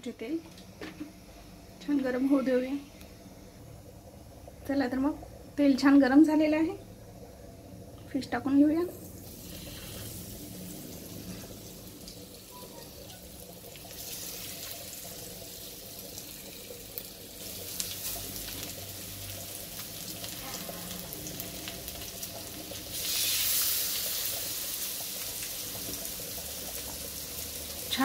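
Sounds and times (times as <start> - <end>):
fish sizzling in hot oil: 8.4 - 28.0.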